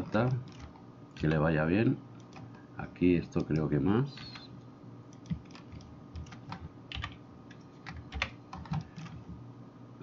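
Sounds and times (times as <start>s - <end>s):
keyboard and mouse clicks: 0.0s - 0.8s, 5.1s - 9.3s.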